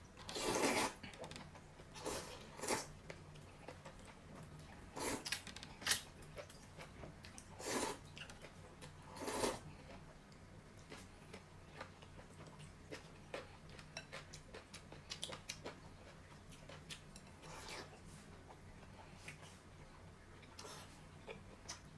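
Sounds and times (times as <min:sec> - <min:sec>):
noodles being slurped: 0:00.3 - 0:01.0.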